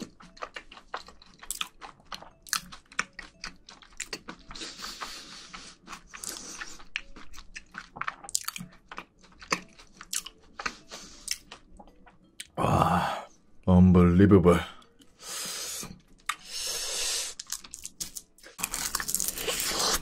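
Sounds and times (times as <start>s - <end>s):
chewing food: 0.0s - 12.6s.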